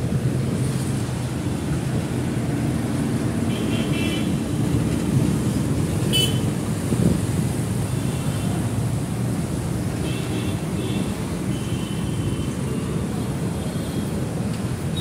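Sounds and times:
road traffic rumble: 0:00.0 - 0:15.0
vehicle horn honking: 0:06.1 - 0:06.5.

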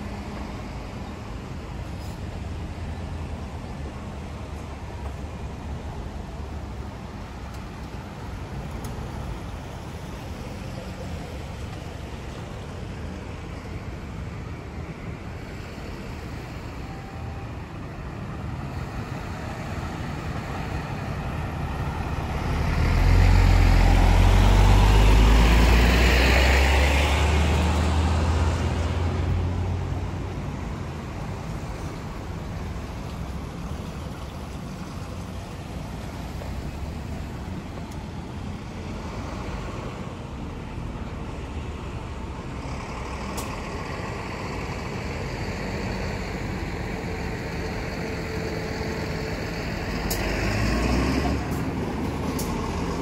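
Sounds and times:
background traffic noise: 0:00.0 - 0:53.0
vehicle passing by: 0:18.8 - 0:30.6, 0:42.5 - 0:53.0.

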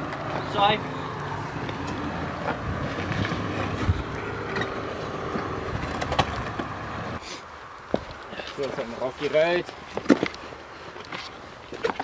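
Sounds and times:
engine running at low revs: 0:00.0 - 0:07.2.

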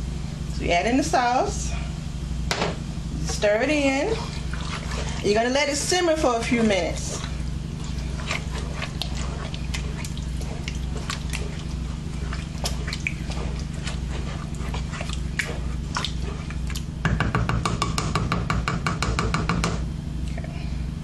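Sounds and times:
steady low hum: 0:00.0 - 0:21.0
spoon stirring thick sauce: 0:03.8 - 0:17.0.

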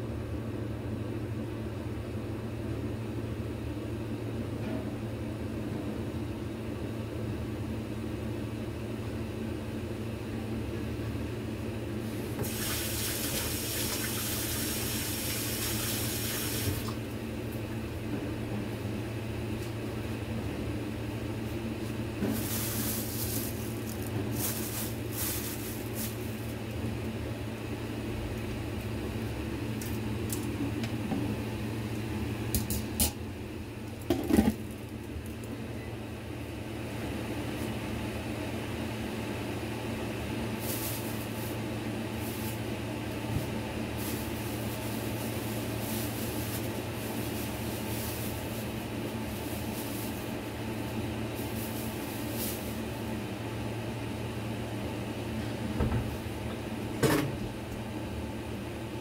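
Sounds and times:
kitchen tap running: 0:12.4 - 0:17.0.

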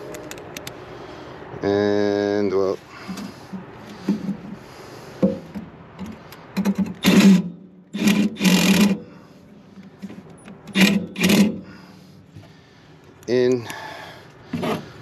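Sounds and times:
cordless drill driving a screw: 0:07.0 - 0:09.0, 0:10.7 - 0:11.6.

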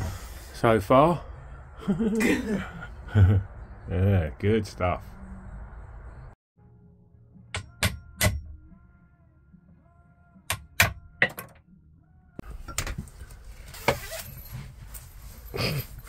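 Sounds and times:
hammer striking chisel: 0:07.5 - 0:08.5, 0:10.5 - 0:11.5.

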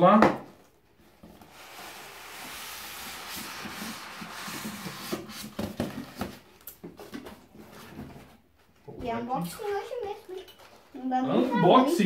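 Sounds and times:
styrofoam scraping out of box: 0:01.4 - 0:06.3.

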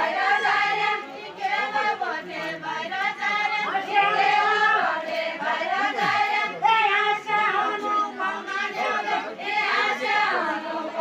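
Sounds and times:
group singing folk song: 0:00.0 - 0:11.0.

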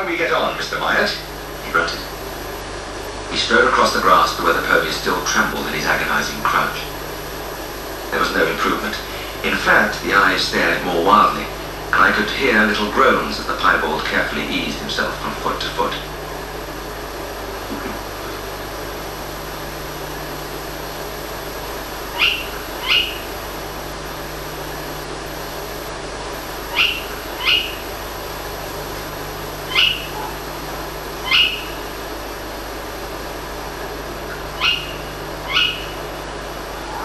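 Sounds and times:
background hiss and low hum: 0:00.0 - 0:37.0
owl calls: 0:21.9 - 0:23.4, 0:26.6 - 0:28.0, 0:29.6 - 0:32.0, 0:34.2 - 0:37.0.

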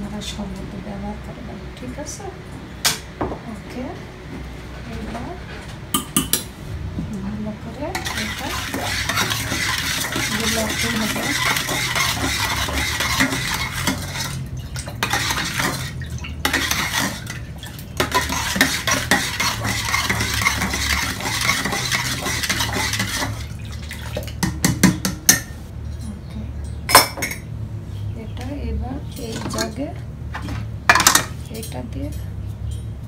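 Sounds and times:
spoon stirring in metal jug: 0:06.0 - 0:06.5, 0:07.9 - 0:26.2.

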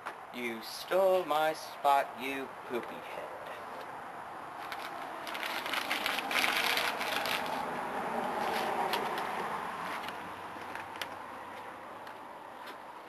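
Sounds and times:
rustling and crackling handling noise: 0:04.6 - 0:07.7.

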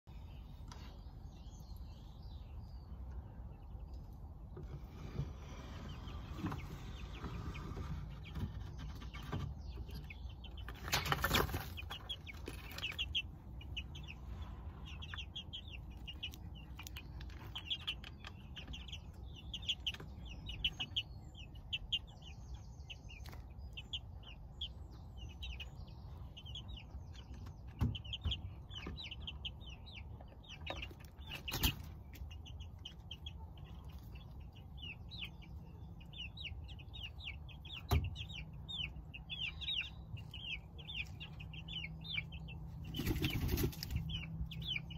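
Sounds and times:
chicks cheeping: 0:00.0 - 0:44.9.

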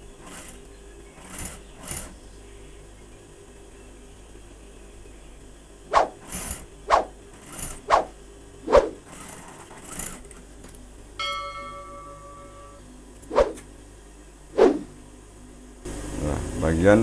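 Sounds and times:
bell-like notification chime: 0:11.2 - 0:12.8.

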